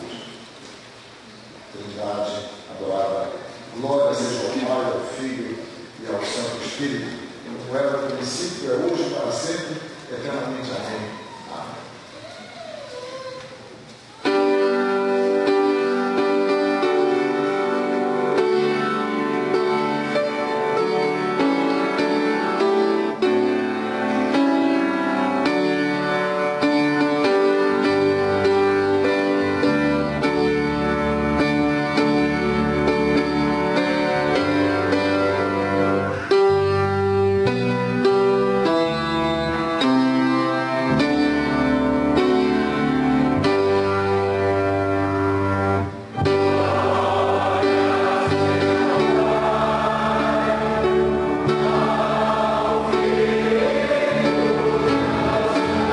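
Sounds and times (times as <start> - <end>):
sustained instrumental hymn chords: 1.0 - 11.2, 14.2 - 55.9
congregation singing: 14.2 - 55.9.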